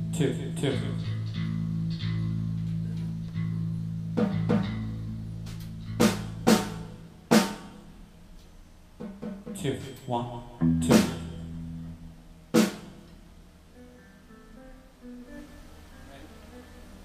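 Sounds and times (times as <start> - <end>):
steady low hum: 0.0 - 17.0
drum kit hits ringing: 9.0 - 13.2.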